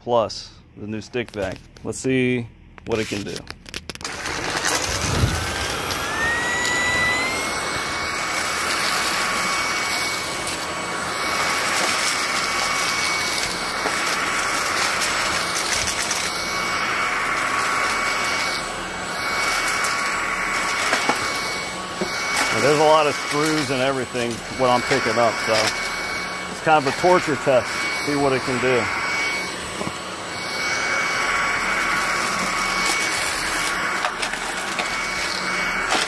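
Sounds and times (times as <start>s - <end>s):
debris clicking in vacuum: 3.3s - 6.0s
vacuum motor whine: 4.0s - 36.0s.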